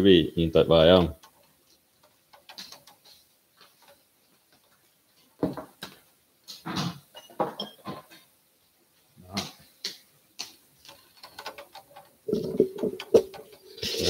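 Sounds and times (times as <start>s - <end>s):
knocks and clicks on counter: 1.1s - 4.0s, 9.9s - 13.6s.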